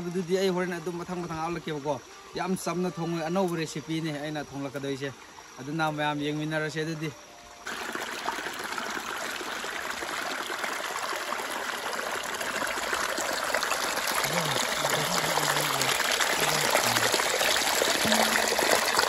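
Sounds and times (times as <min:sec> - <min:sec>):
stream trickling over stones: 0:07.6 - 0:19.0.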